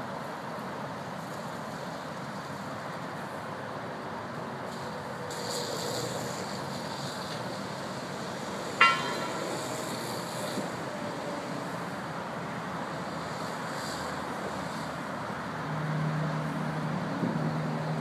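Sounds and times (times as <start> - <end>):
roadside traffic: 0.0 - 18.0
fire hose spraying water: 4.6 - 15.5.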